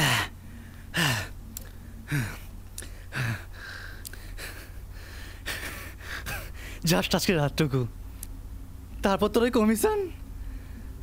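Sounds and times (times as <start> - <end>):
man exhaling breathily: 0.0 - 6.8
quiet breathing: 0.0 - 6.9, 10.2 - 11.0.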